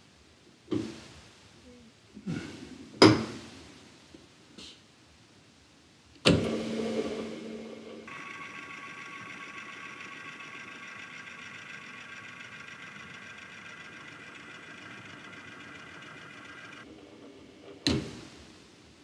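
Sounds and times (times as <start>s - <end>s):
low motor hum: 6.3s - 16.9s
electric motor whining: 6.4s - 16.8s.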